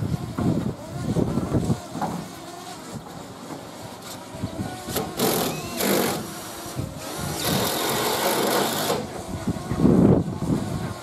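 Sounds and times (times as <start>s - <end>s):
power drill driving screws: 4.0s - 9.2s.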